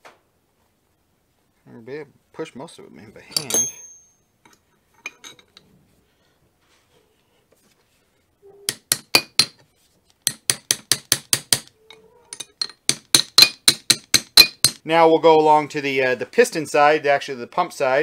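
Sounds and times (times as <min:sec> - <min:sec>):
hammer tapping metal: 0:03.4 - 0:04.2, 0:08.7 - 0:09.6, 0:10.2 - 0:11.7, 0:12.4 - 0:14.8.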